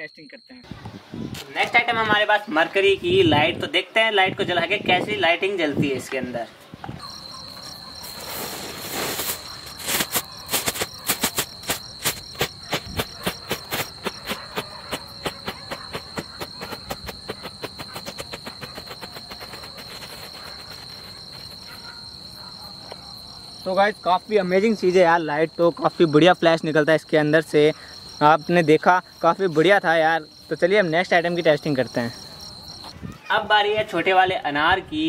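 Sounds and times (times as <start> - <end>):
crickets chirping: 0.0 - 35.0
firework hiss: 8.0 - 20.6
firework crackling pops: 8.1 - 18.5.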